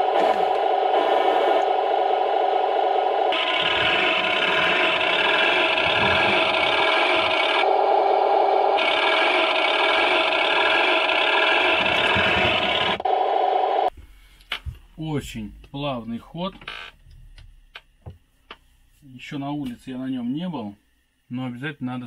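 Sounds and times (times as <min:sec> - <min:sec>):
toy tank motors whirring: 0:03.3 - 0:07.6, 0:08.8 - 0:13.0.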